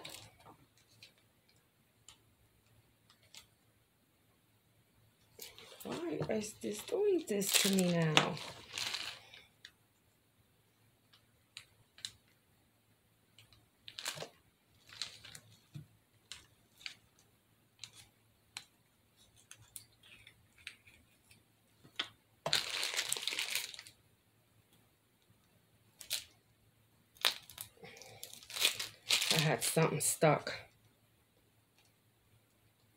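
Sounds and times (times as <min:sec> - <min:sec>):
plastic piping bag crinkling: 0:00.0 - 0:01.2, 0:05.4 - 0:09.5, 0:13.8 - 0:15.7, 0:22.4 - 0:24.0, 0:26.0 - 0:26.4, 0:27.1 - 0:30.6.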